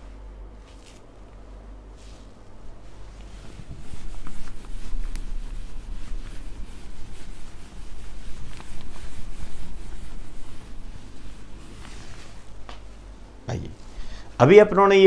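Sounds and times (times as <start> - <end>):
duster scrubbing whiteboard: 1.8 - 13.2.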